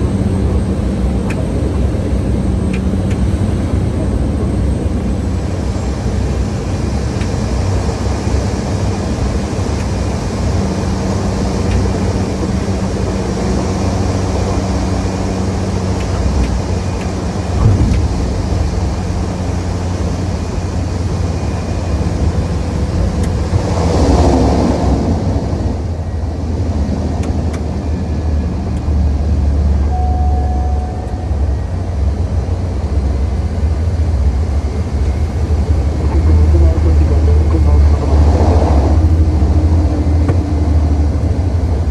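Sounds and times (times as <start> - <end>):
turboprop engine drone: 0.0 - 41.9
rushing noise: 12.2 - 27.1, 34.5 - 41.9
thump: 17.6 - 18.1.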